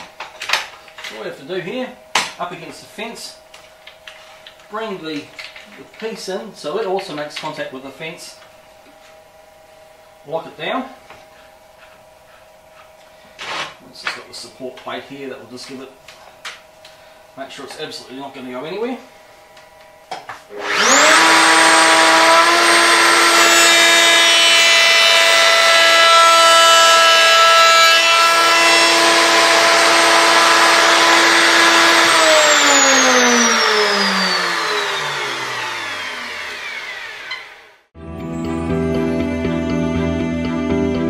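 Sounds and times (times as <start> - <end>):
router cutting wood: 20.5 - 37.9
router whining: 20.5 - 37.9.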